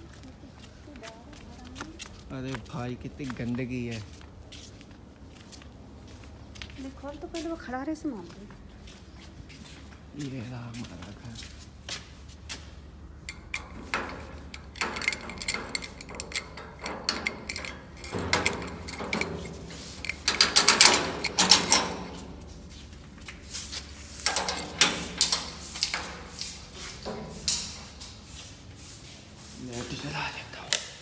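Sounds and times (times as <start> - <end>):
metal clicks and rattles: 13.2 - 28.4
door opening: 13.2 - 28.6
key turning in padlock: 13.3 - 22.7, 24.0 - 28.2.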